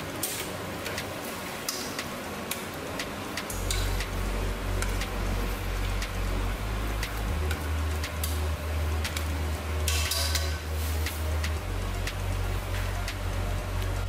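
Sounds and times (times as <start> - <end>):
deep low hum: 3.5 - 14.0.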